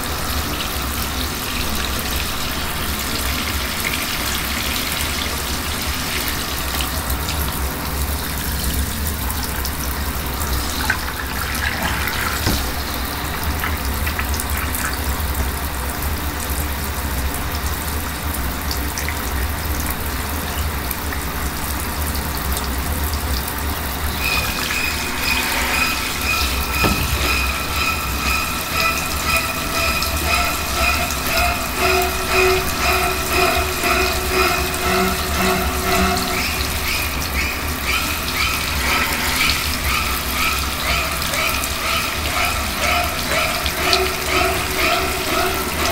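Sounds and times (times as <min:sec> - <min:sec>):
shower spray in bathtub: 0:00.0 - 0:15.8, 0:23.8 - 0:45.9
rapid pulsing high tone: 0:24.1 - 0:45.9.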